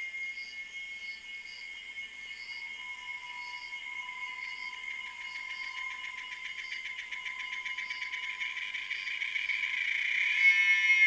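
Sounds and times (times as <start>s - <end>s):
insects trilling and buzzing: 0.0s - 11.0s
thin steady whistle: 0.0s - 11.0s.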